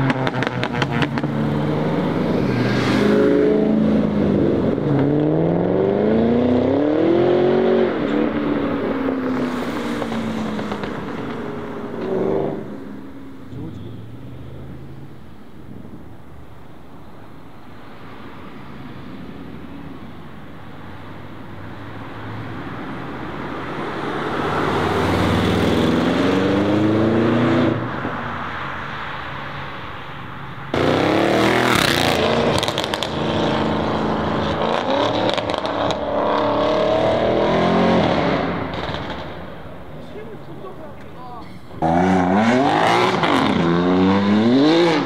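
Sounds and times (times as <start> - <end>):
car engine accelerating hard: 30.7 - 39.0, 41.8 - 45.0.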